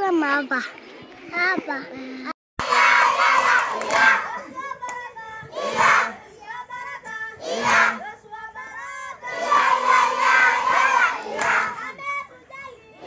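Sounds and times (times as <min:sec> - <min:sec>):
children shouting together: 0:02.6 - 0:08.1, 0:08.9 - 0:13.0.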